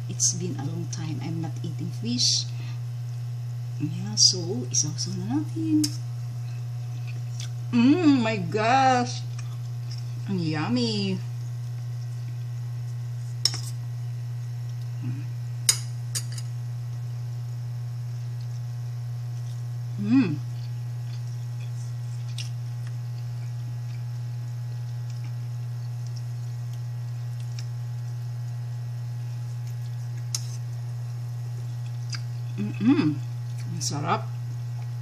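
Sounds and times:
steady low hum: 0:00.0 - 0:35.0
person humming mm: 0:07.7 - 0:08.3, 0:15.0 - 0:15.4, 0:20.0 - 0:20.6, 0:32.6 - 0:33.2.

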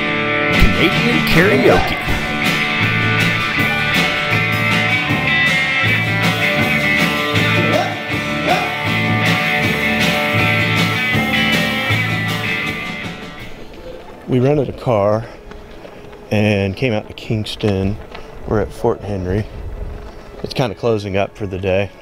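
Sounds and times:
strummed acoustic guitar: 0:00.0 - 0:13.7
electric guitar: 0:00.0 - 0:14.3
steady drum beat: 0:00.5 - 0:13.5.

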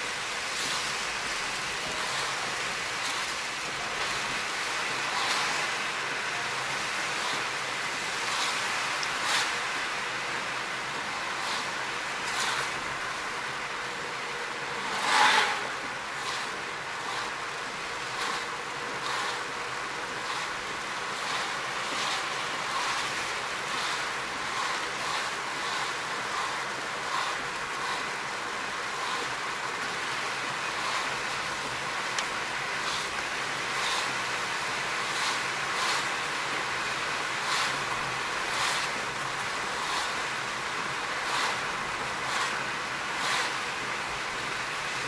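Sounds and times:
rain and wet tyres hissing: 0:00.0 - 0:45.0
windscreen wipers sweeping: 0:00.0 - 0:45.0
loud whoosh: 0:14.2 - 0:17.3.

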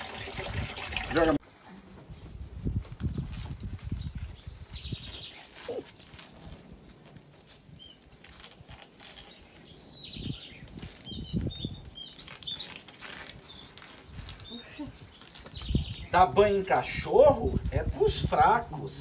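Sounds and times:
towel rustling and rubbing: 0:02.1 - 0:16.0.

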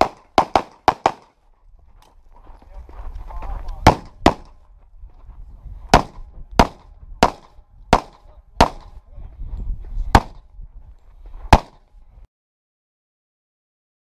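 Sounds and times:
handgun shots: 0:00.0 - 0:01.3, 0:03.9 - 0:04.5, 0:06.0 - 0:08.9, 0:11.5 - 0:11.8.

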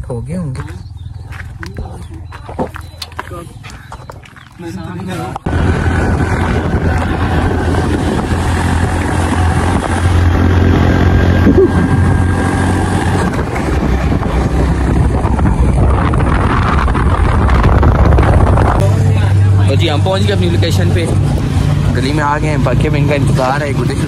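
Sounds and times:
wind on microphone: 0:05.3 - 0:19.5
motorcycle engine running: 0:05.4 - 0:24.0.

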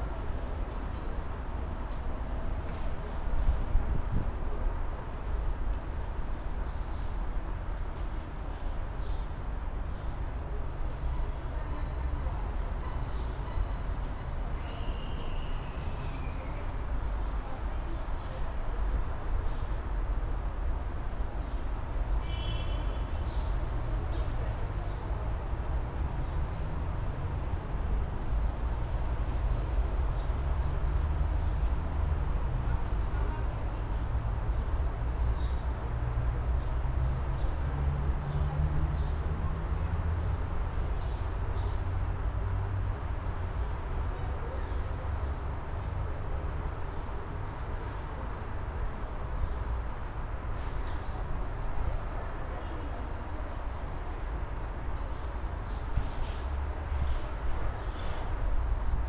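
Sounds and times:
city traffic noise: 0:00.0 - 0:59.0
tram rumble and hum: 0:23.1 - 0:59.0.

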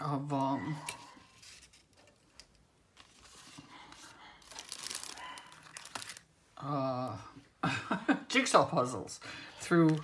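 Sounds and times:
packaging rustling and crinkling: 0:00.9 - 0:06.3.

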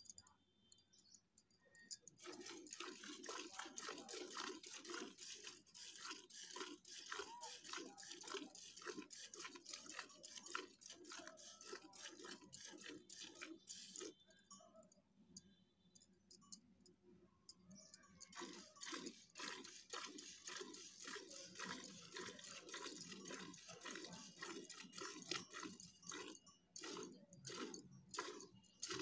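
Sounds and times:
milk squirting into steel bucket: 0:02.1 - 0:14.2, 0:18.2 - 0:29.0.

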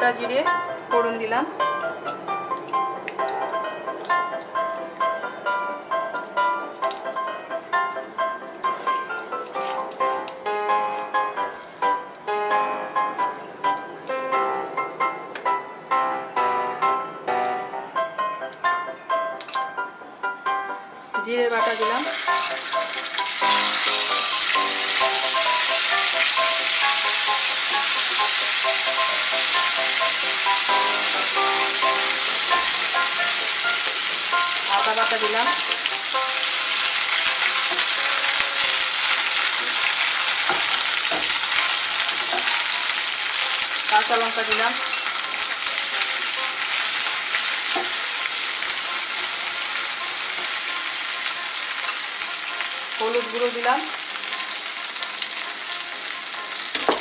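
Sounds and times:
paste sizzling in hot oil: 0:21.5 - 0:56.8.

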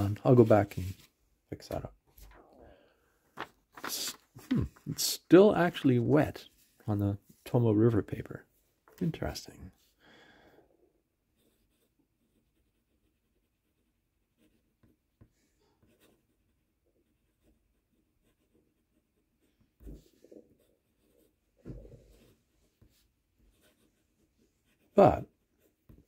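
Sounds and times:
fountain pen scratching on paper: 0:11.3 - 0:26.0.

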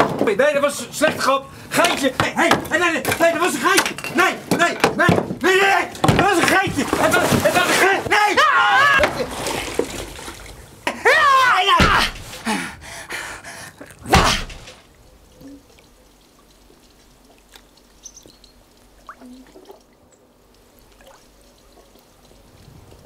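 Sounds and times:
body splashing into pool: 0:06.1 - 0:10.8, 0:11.6 - 0:12.5, 0:13.9 - 0:14.9
faint water drips: 0:09.0 - 0:23.0.

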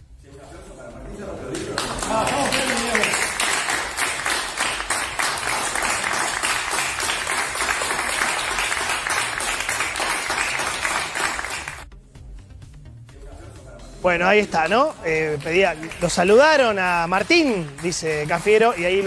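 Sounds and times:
people applauding: 0:01.2 - 0:11.9, 0:14.4 - 0:19.0.

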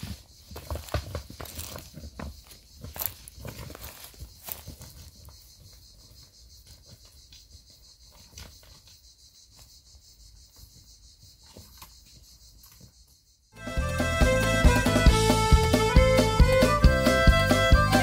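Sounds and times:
footsteps on stony path: 0:00.0 - 0:07.3
insects chirring: 0:00.0 - 0:18.0.

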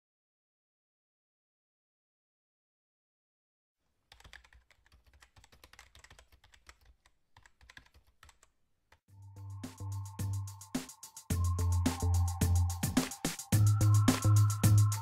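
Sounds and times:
electronic music with bass beat: 0:09.2 - 0:15.0.

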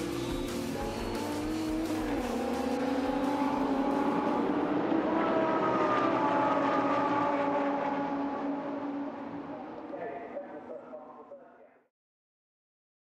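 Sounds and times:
race car engines driving away: 0:00.0 - 0:11.0.

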